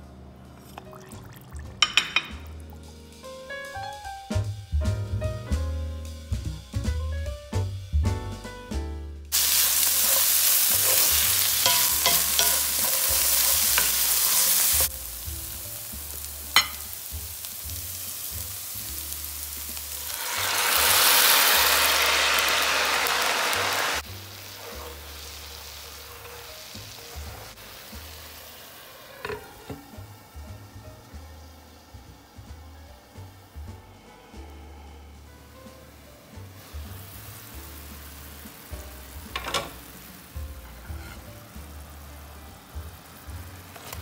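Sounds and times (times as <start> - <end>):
sauce poured into hot pan: 0.6 - 2.6, 9.3 - 30.5
food sizzling in a skillet: 9.3 - 34.0, 35.6 - 44.0.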